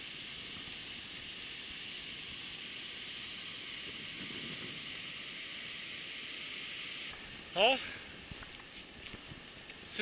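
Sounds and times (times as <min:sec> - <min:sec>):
wind blowing: 0:00.0 - 0:10.0
wind buffeting microphone: 0:03.3 - 0:06.0.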